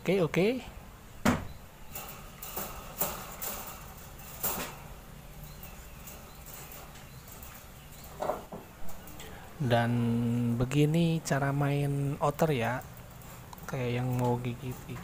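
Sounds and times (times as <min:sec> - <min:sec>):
knocks against wire cage: 0:01.2 - 0:05.0.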